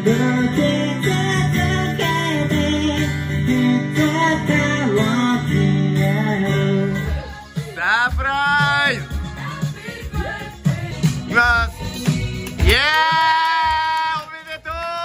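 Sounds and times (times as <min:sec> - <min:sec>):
acoustic guitar strumming: 0:00.0 - 0:09.2
man singing: 0:00.0 - 0:09.3, 0:11.0 - 0:15.0.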